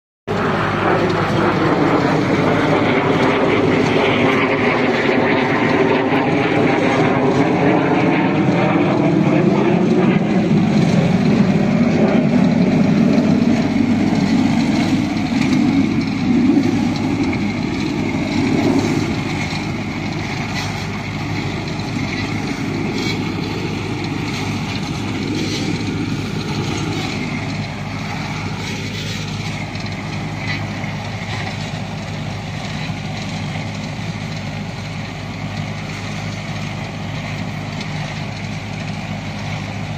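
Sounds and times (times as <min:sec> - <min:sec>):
rotary blades churning soil: 0:00.3 - 0:39.9
tractor engine under load: 0:00.3 - 0:39.9.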